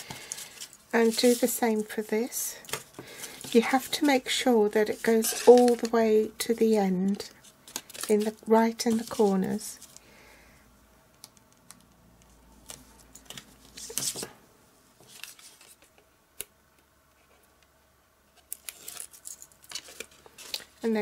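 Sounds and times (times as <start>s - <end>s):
card rustling: 0.0s - 6.0s, 6.8s - 10.0s.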